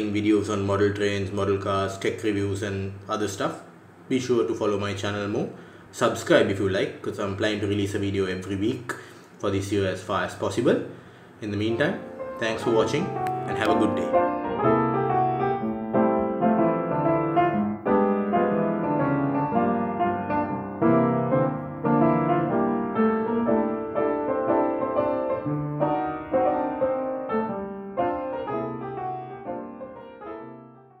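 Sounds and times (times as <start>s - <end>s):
piano music: 11.5s - 31.0s.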